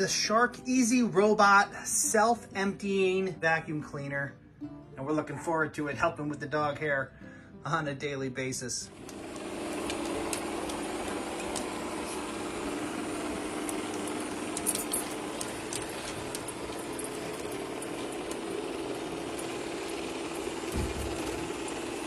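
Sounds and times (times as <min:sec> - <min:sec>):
robot vacuum whirring hum: 0:08.9 - 0:22.0
small clicks: 0:09.0 - 0:22.0.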